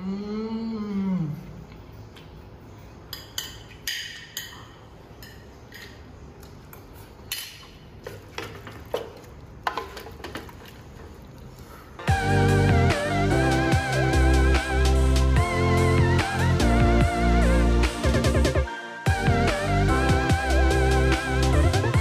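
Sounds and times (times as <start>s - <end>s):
loud guitar music: 12.1s - 22.0s.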